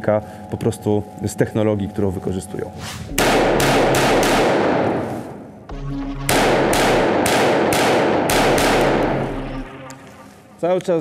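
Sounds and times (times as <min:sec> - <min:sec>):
pistol shots ringing: 0:03.2 - 0:05.0, 0:06.3 - 0:09.9.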